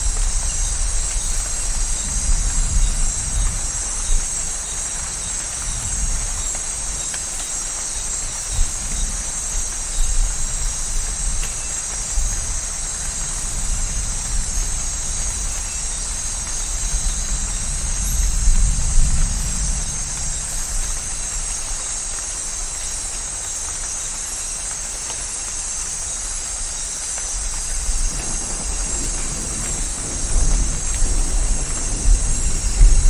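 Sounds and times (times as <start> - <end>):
steady rain hiss: 0.0 - 33.0
distant thunder rumble: 27.8 - 33.0.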